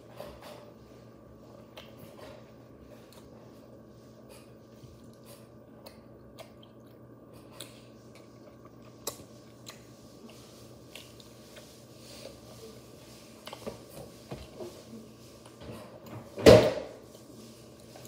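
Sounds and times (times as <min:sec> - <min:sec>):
steady low hum: 0:00.0 - 0:18.0
person chewing: 0:04.2 - 0:12.4, 0:13.3 - 0:13.7.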